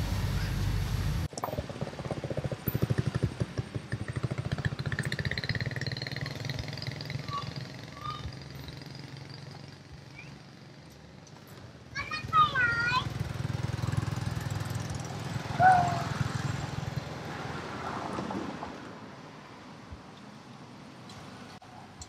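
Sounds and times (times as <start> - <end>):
motorbike engine passing: 1.6 - 10.9, 12.0 - 18.9.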